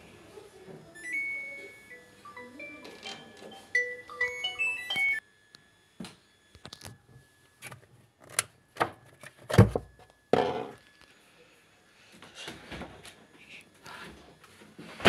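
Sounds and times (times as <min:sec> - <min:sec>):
washing machine beeping jingle: 0:01.0 - 0:05.2.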